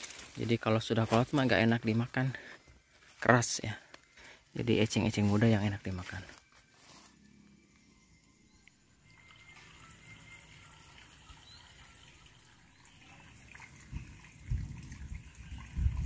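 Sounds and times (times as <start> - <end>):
water trickling in channel: 9.0 - 16.0.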